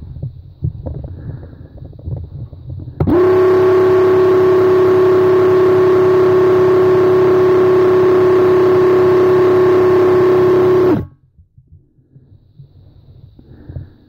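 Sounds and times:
paint sprayer pump motor whining: 0:03.0 - 0:11.1.

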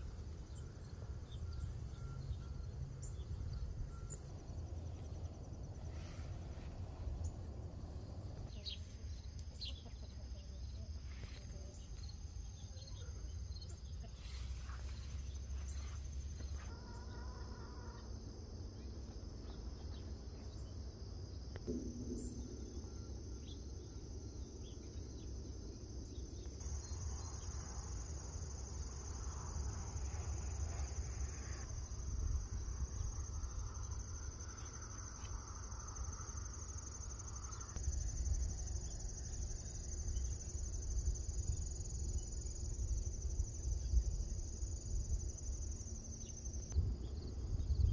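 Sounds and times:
crickets and insects trilling: 0:00.0 - 0:47.9
low rumble: 0:21.5 - 0:27.2.

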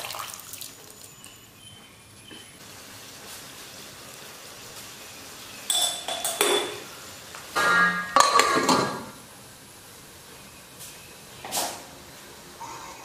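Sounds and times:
metal pan lid clanking: 0:07.6 - 0:09.1.

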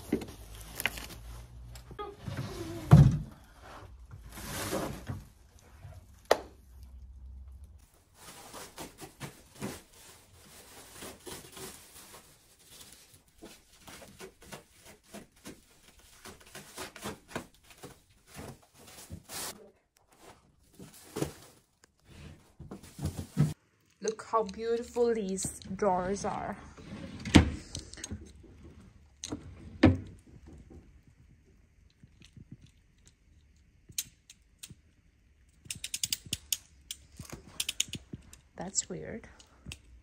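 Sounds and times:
plastic wrap crinkling and tearing: 0:00.0 - 0:01.8, 0:07.8 - 0:23.6.

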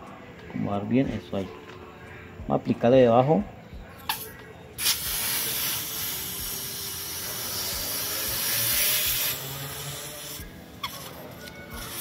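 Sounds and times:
gas spray hissing: 0:04.1 - 0:12.0.

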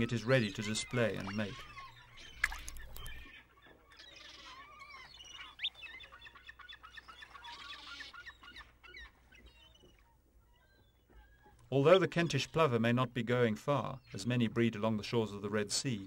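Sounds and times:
shorebirds chirping and piping: 0:00.0 - 0:16.0.

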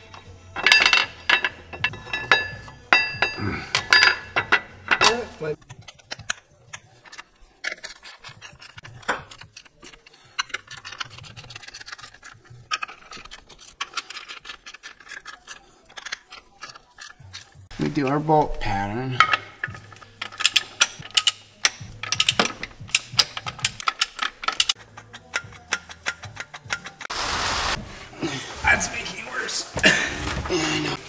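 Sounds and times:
metal bolts clicking: 0:19.2 - 0:27.1.

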